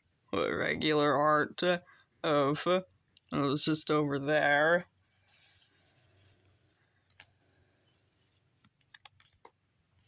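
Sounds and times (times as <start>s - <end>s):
trading cards clicking and rubbing: 5.3s - 9.6s.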